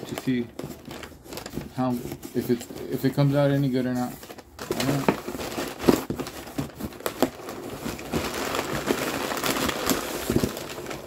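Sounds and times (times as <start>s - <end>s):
packing material rustling: 0.0s - 11.0s.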